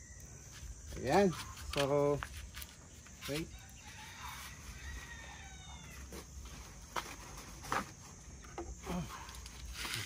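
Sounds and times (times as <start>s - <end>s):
rooster crowing: 3.5s - 6.2s.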